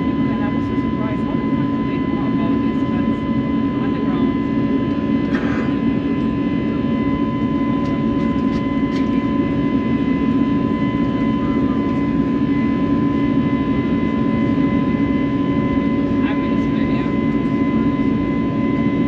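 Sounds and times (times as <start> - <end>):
jet engine cabin drone: 0.0 - 19.0.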